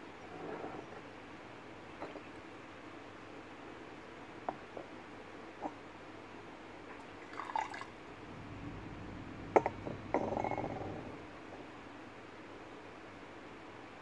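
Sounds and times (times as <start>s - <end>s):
light ceramic clinks: 9.6s - 11.1s.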